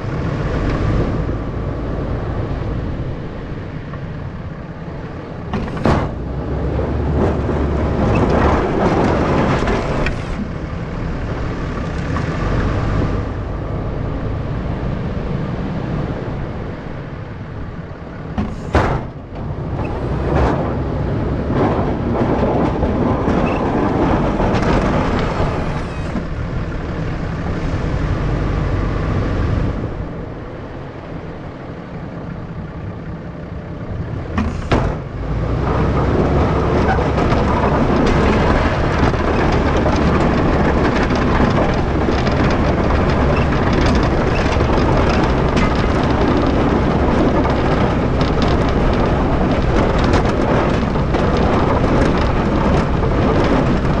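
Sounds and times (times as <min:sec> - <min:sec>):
wind on microphone: 0:00.0 - 0:31.5, 0:33.9 - 0:54.0
snow plow truck driving: 0:00.0 - 0:54.0
short clatter: 0:05.5 - 0:10.7, 0:34.3 - 0:54.0.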